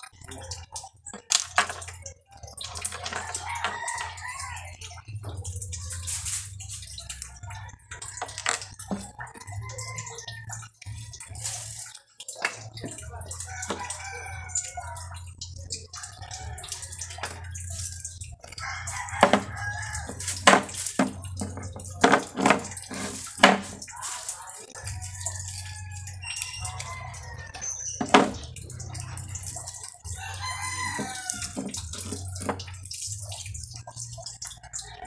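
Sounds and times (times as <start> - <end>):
roosters crowing: 3.0 - 4.8, 7.4 - 11.0, 13.4 - 15.0, 18.5 - 20.4, 29.6 - 32.6
tools knocking on wooden table: 19.2 - 19.5.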